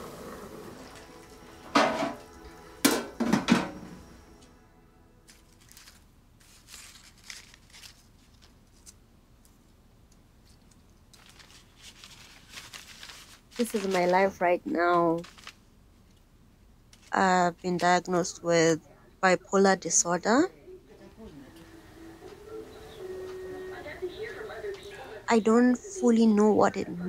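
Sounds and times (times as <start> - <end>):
paper packet rustling and clicking: 5.3 - 9.6, 10.4 - 16.2, 16.9 - 18.0.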